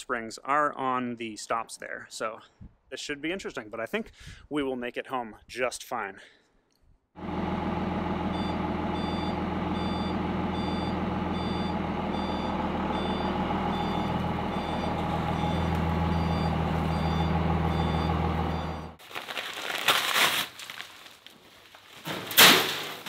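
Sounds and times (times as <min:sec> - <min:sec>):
truck engine running: 0:07.2 - 0:19.0
backup alarm beeping: 0:08.3 - 0:19.0.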